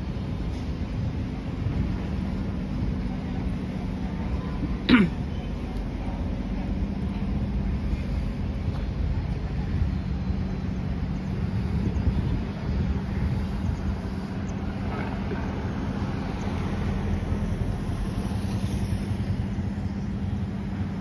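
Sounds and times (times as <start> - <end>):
low hum of traffic: 0.0 - 21.0
car passing: 12.9 - 20.7
motorcycle passing: 14.2 - 20.0.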